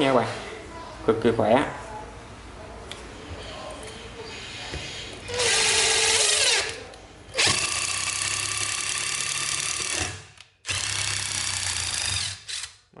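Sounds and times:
impact driver driving screw into wood: 0:07.4 - 0:12.8.

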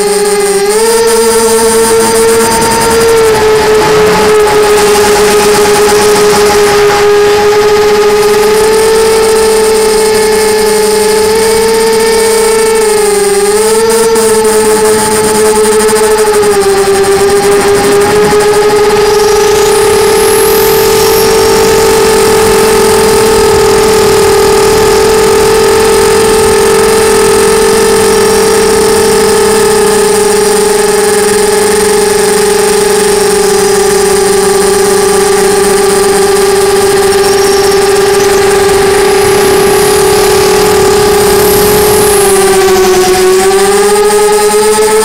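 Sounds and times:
drone motors whining: 0:00.0 - 0:45.0
faint high whistle: 0:37.0 - 0:40.8.

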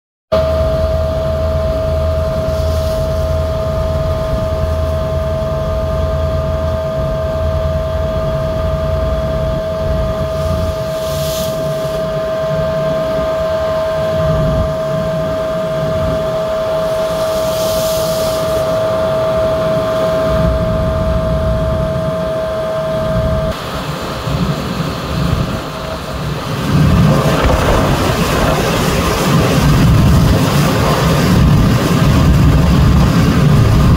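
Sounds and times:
boat engines droning: 0:00.4 - 0:33.9
water rushing alongside hull: 0:00.4 - 0:33.9
hiss of spray or wind: 0:02.4 - 0:03.5, 0:10.2 - 0:12.9, 0:16.7 - 0:18.9.

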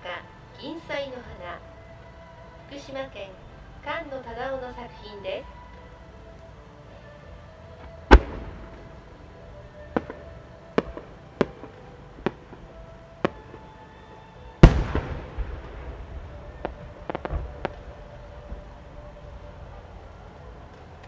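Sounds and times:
faint firework crackles: 0:00.0 - 0:21.0
firework shell bursting with echo: 0:08.1 - 0:08.9, 0:14.6 - 0:16.0
firework launch bang: 0:08.1 - 0:09.0, 0:14.6 - 0:17.8
firework cracks: 0:08.1 - 0:09.1, 0:14.6 - 0:18.0.

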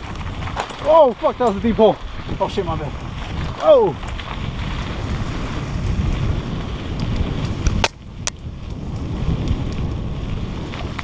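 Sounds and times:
bike rolling over dirt trail: 0:00.0 - 0:11.0
wind rumbling on microphone: 0:00.0 - 0:11.0
sharp bike clicks: 0:03.2 - 0:11.0.

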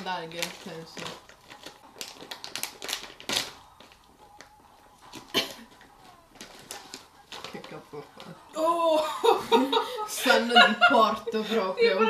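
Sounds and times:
plastic snack bag crinkling: 0:00.0 - 0:08.5.

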